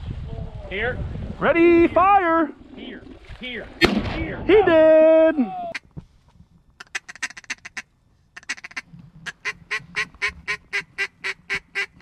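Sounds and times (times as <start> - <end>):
duck call quacks: 6.8 - 12.0.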